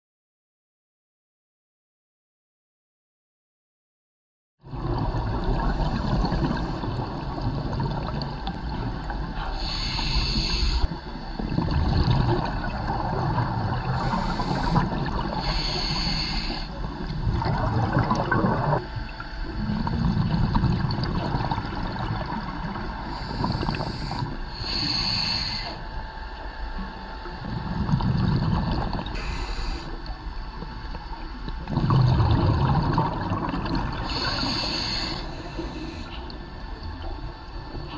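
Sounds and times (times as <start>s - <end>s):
exhaled bubbles underwater: 4.6s - 25.7s, 26.8s - 37.9s
regulator inhale hiss: 9.4s - 11.0s, 13.9s - 16.9s, 23.0s - 25.9s, 29.1s - 30.1s, 34.0s - 36.3s.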